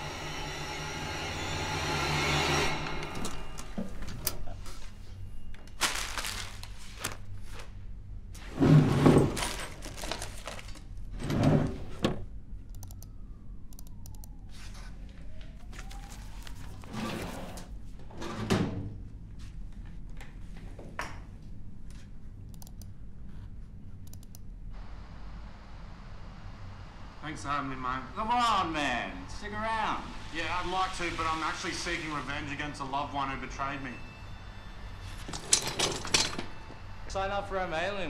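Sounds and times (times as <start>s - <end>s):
objects thunking and rustling: 8.5s - 12.2s.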